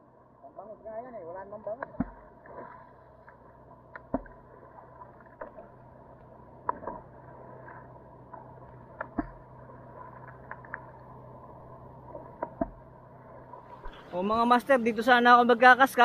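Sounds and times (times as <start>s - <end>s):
faint steady hum: 0.0s - 16.0s
sea water lapping: 0.0s - 16.0s.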